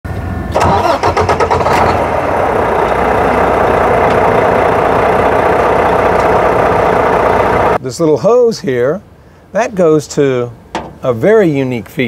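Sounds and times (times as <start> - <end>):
diesel truck engine starting: 0.5 - 7.8.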